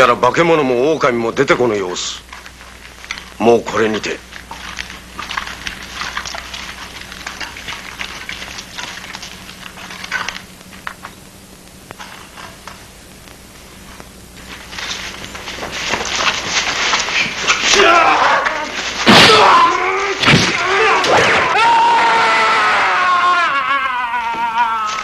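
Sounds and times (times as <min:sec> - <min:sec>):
footsteps crunching on gravel: 0:02.2 - 0:11.2, 0:13.6 - 0:19.1
many feet running: 0:02.3 - 0:11.0, 0:14.4 - 0:25.0.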